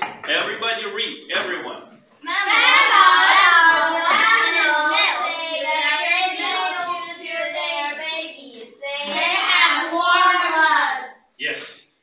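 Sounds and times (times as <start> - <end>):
children reading aloud in chorus: 2.2 - 11.3.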